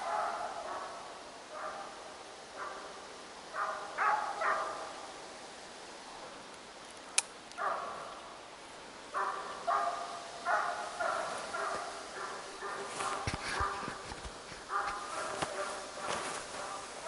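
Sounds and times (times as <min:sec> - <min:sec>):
hounds baying and yelping: 0:00.0 - 0:05.0, 0:07.6 - 0:08.1, 0:09.1 - 0:17.0.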